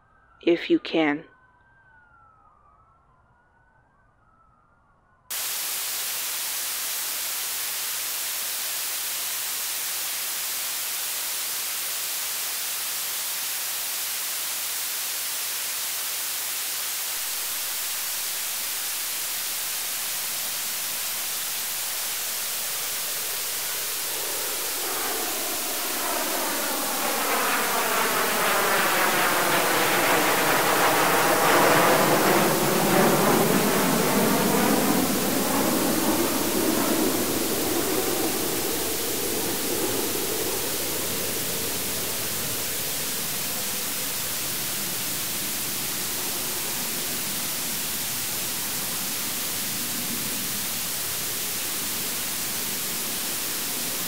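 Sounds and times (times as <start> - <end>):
faint siren wailing: 0.0 - 5.3, 19.4 - 48.0
radio static hiss: 5.3 - 54.0
sweeping whooshing in static: 5.3 - 54.0.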